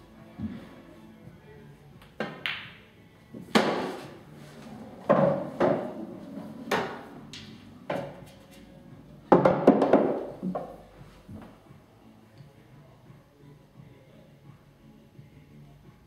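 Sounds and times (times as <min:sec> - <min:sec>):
pool balls knocking: 0:03.4 - 0:08.2, 0:09.3 - 0:10.8
cue striking ball: 0:03.5 - 0:04.0, 0:05.0 - 0:08.2, 0:09.3 - 0:10.7.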